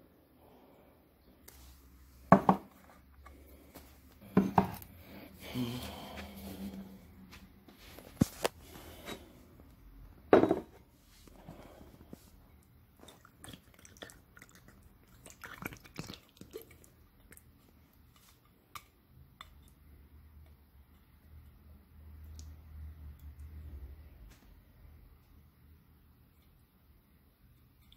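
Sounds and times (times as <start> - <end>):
can and plate knocking on table: 2.3 - 2.7, 10.3 - 10.8.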